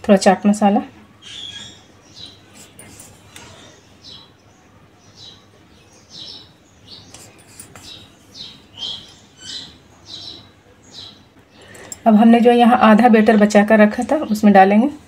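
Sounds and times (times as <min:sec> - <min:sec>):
small bird chirping: 0:01.2 - 0:12.1.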